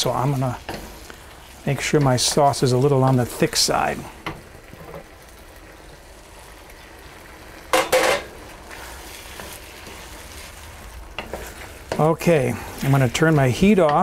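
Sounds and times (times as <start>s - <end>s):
sauce sizzling in a wok: 0.0s - 14.0s
wooden spoon scraping a pan: 7.8s - 14.0s.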